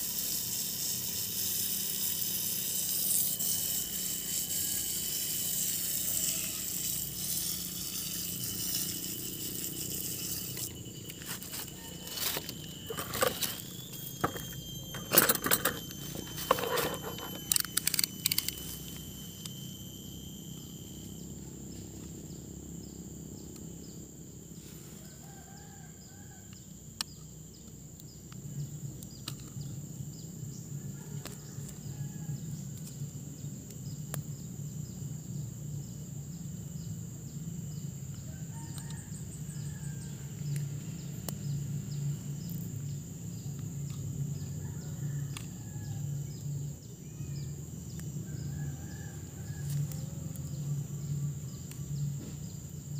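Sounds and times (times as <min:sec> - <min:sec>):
steady high-pitched whine: 0:00.0 - 0:52.9
sharp clicks: 0:12.4 - 0:19.0.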